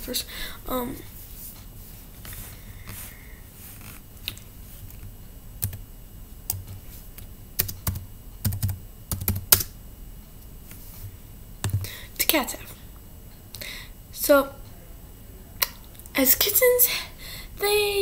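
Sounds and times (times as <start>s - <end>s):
laptop keyboard typing: 4.9s - 5.8s, 7.6s - 9.7s, 11.6s - 11.9s.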